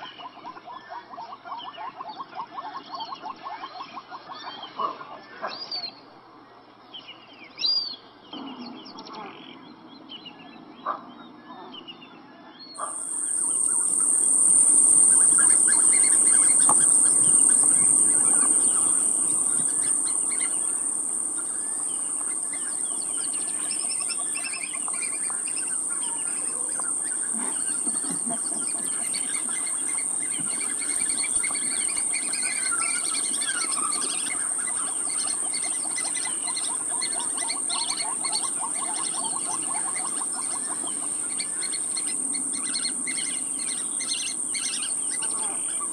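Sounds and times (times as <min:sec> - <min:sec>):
birds chirping: 0:12.6 - 0:45.9
insect buzzing high-pitched: 0:12.8 - 0:45.9.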